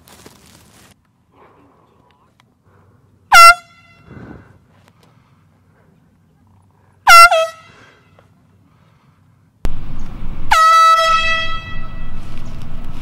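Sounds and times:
air horn honks: 0:03.3 - 0:04.1, 0:07.0 - 0:08.2, 0:10.4 - 0:12.3.

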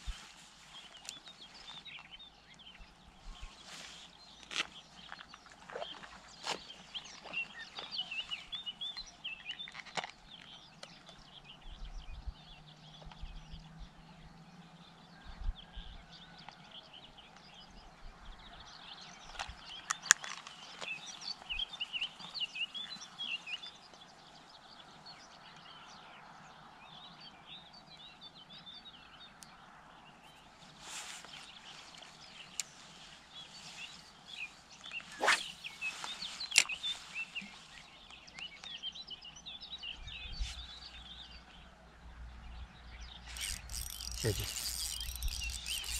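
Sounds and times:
songbirds chirping and singing: 0:00.8 - 0:45.9
sharp clicks: 0:43.3 - 0:45.9.

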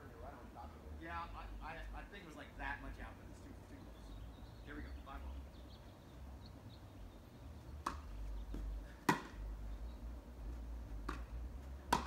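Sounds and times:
tennis racket hitting ball: 0:07.8 - 0:09.4, 0:11.0 - 0:12.0
tennis ball bouncing: 0:07.8 - 0:09.5, 0:10.9 - 0:12.0.

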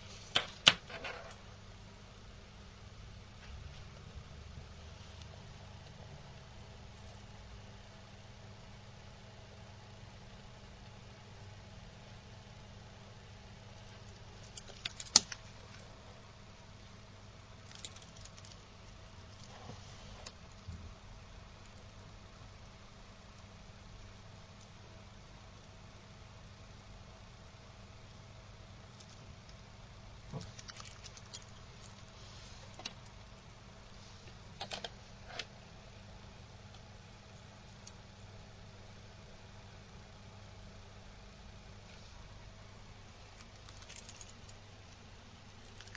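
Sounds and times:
low electrical hum and hiss: 0:00.0 - 0:45.9
small clicks and knocks: 0:30.3 - 0:32.0, 0:43.2 - 0:44.6.

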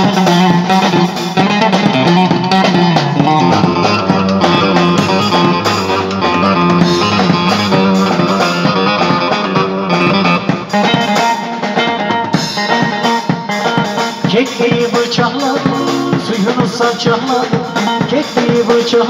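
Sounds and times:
drum kit dance beat: 0:00.0 - 0:19.0
plucked string melody: 0:02.4 - 0:14.2.

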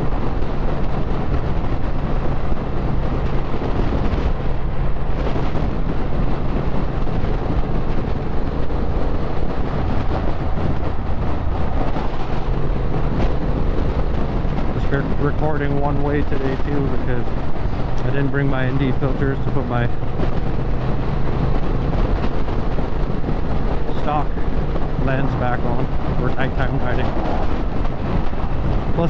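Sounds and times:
motorcycle engine running: 0:00.0 - 0:29.0
wind on microphone: 0:00.0 - 0:29.0.

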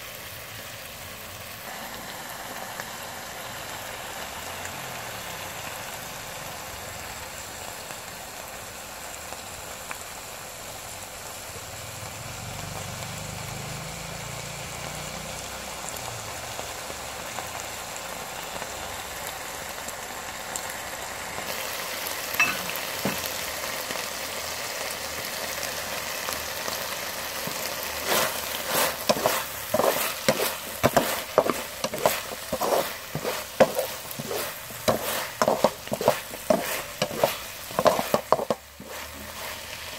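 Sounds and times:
food sizzling in a wok: 0:00.0 - 0:39.9
wooden spatula scraping food: 0:27.3 - 0:39.9.

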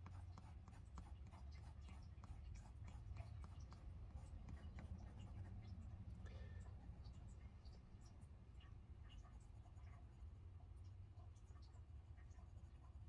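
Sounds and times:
pencil scratching on paper: 0:00.0 - 0:05.8
low steady hum: 0:00.0 - 0:13.0.

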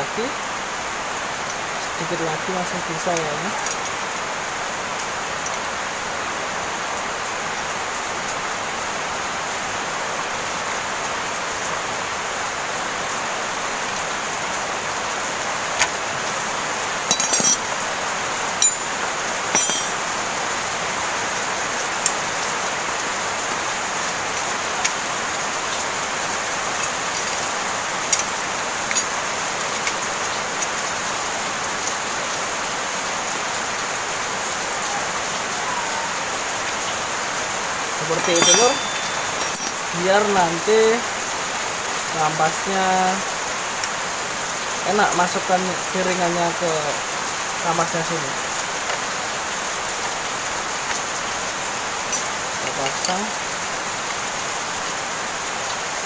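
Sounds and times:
tool clinking on metal: 0:17.1 - 0:17.7, 0:18.6 - 0:20.0, 0:38.1 - 0:40.0
heavy rain hissing: 0:20.8 - 0:38.3.

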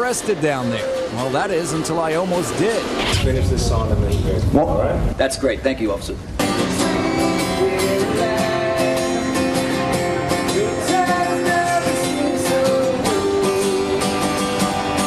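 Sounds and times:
acoustic guitar strumming: 0:06.4 - 0:15.0
person singing: 0:06.4 - 0:15.0.

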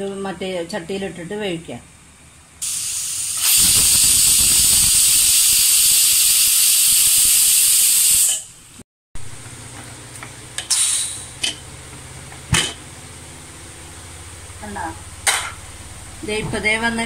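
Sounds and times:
pressure cooker whistling: 0:02.6 - 0:08.5, 0:10.7 - 0:11.3.

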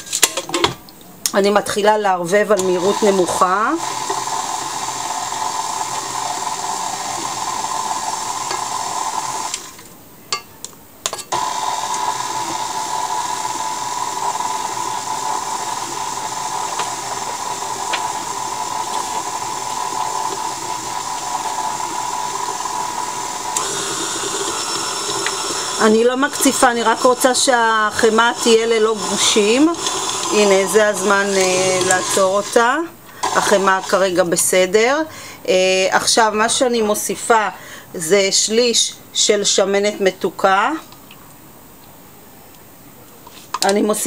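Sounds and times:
stand mixer motor hum: 0:02.6 - 0:09.7, 0:11.4 - 0:32.6, 0:33.2 - 0:34.0.

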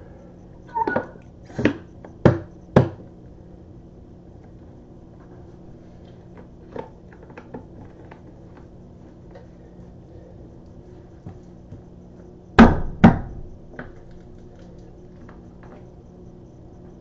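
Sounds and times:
low steady hum: 0:00.0 - 0:17.0
sharp knocks: 0:12.6 - 0:13.4.

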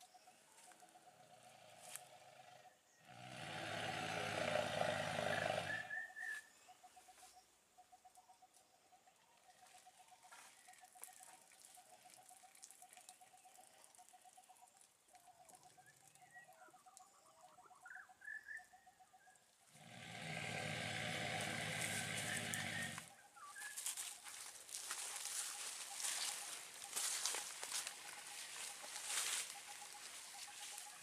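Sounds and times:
drawn-out animal call: 0:00.7 - 0:06.2, 0:19.7 - 0:23.2
bird chirps: 0:05.5 - 0:19.6, 0:21.8 - 0:31.0.

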